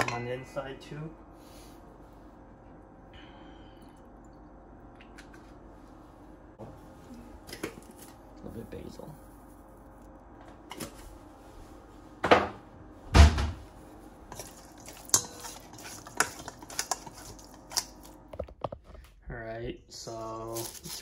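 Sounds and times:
chopsticks clicking on metal bowl: 14.3s - 18.0s.

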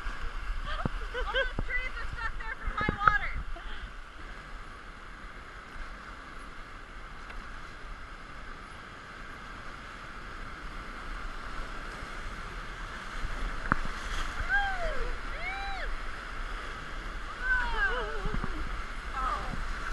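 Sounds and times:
whitewater rapids rushing: 10.0s - 19.9s.

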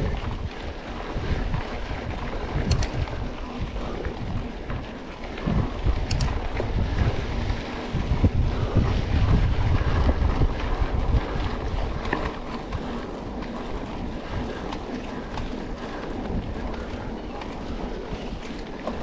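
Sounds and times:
wind buffeting microphone: 0.0s - 19.0s
bike clicks and knocks: 2.6s - 3.0s, 6.0s - 6.4s
heavy low rumble: 5.4s - 12.1s.

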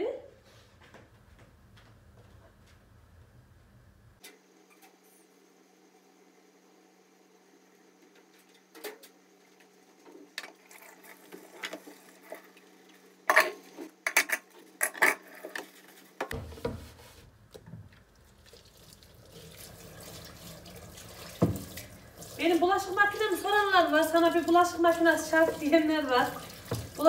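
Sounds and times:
tap water running into sink: 18.3s - 27.0s.

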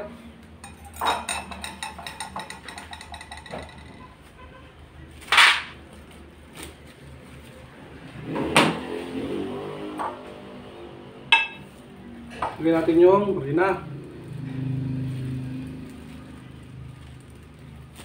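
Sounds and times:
kitchenware ticks and clinks: 0.6s - 4.2s.

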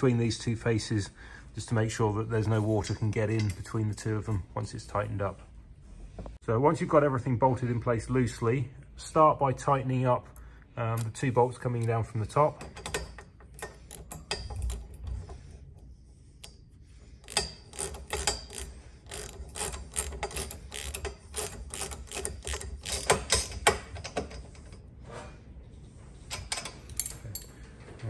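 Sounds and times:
socket ratchet clicking: 17.2s - 24.3s.

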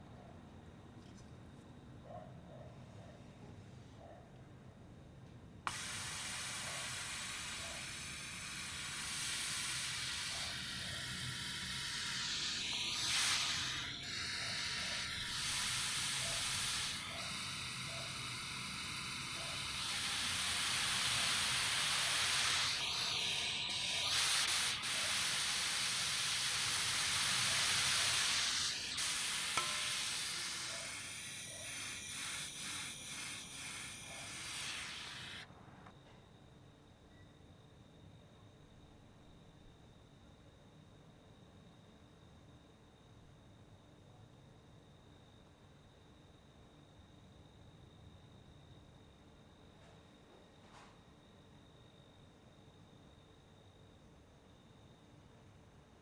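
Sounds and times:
airy trumpet breath hiss: 5.7s - 35.5s
faint whistled tones: 5.7s - 36.3s, 37.0s - 37.6s.

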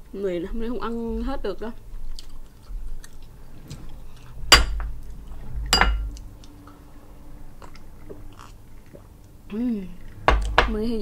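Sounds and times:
glass mug clinking on glass: 5.7s - 6.1s.

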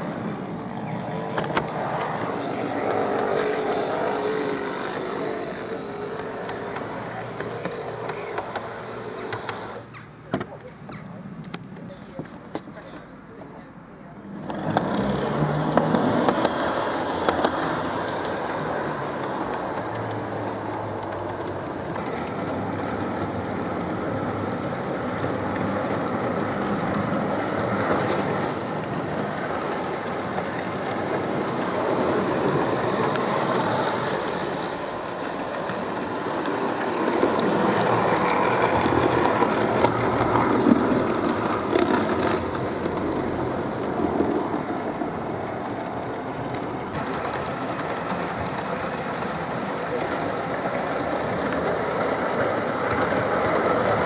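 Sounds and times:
electric motors humming: 0.0s - 9.9s
model train wheels clicking on rails: 0.0s - 13.1s, 14.2s - 54.0s.

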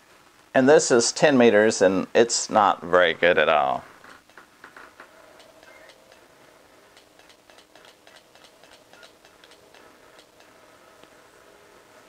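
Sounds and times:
radio transceiver ticking: 6.9s - 10.5s.

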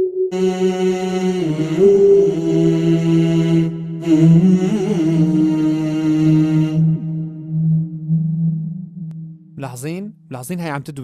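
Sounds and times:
voices singing a cappella harmony: 0.3s - 8.2s.

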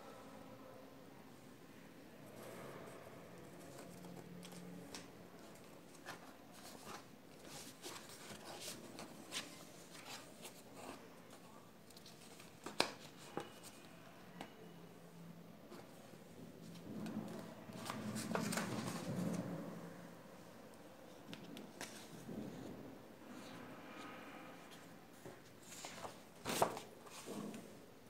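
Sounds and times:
paper rustling: 3.5s - 13.9s, 16.7s - 19.4s, 25.3s - 27.7s.

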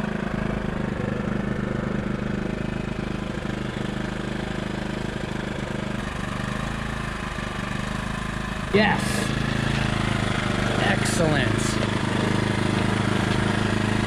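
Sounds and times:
small generator running: 0.0s - 14.0s.

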